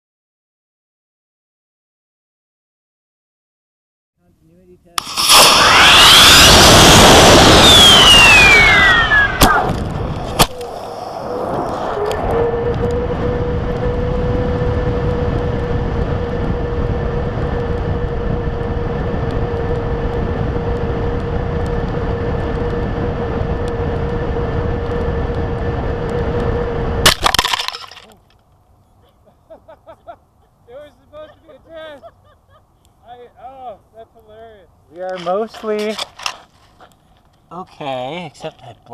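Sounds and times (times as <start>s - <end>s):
sharp ejection charge pop: 5.0s - 10.8s, 27.0s - 28.2s
air rushing with whistling tone: 5.0s - 27.1s
rocket motor roaring with whistle: 5.0s - 28.0s.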